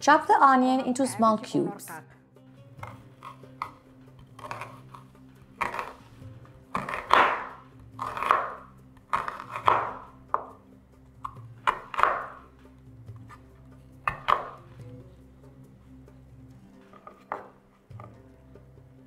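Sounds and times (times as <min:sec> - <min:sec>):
knife slicing onion: 0:02.8 - 0:10.5, 0:11.2 - 0:12.5, 0:14.0 - 0:14.7
knife striking wooden cutting board: 0:05.6 - 0:06.1, 0:06.7 - 0:10.6, 0:11.2 - 0:12.5, 0:14.0 - 0:14.7, 0:16.9 - 0:18.2.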